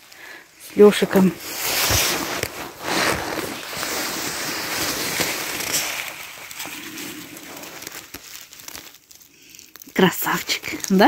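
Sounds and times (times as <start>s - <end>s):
footsteps rustling through leaves: 0.8s - 9.0s
twigs snapping: 1.0s - 11.0s.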